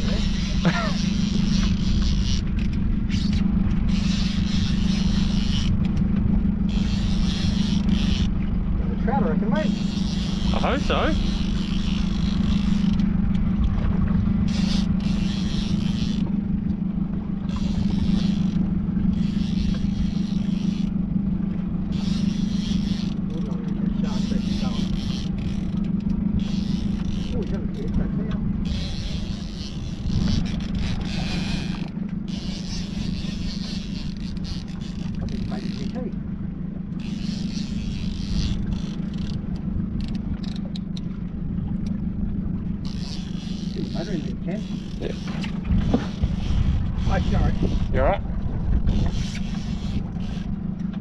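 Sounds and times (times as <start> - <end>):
outboard motor running: 0.0 - 51.0.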